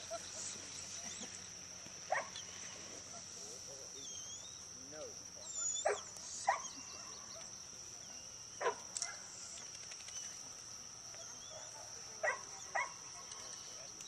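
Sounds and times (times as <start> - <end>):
dog barking: 2.1 - 2.3, 5.8 - 7.5, 8.6 - 9.2, 11.2 - 13.5.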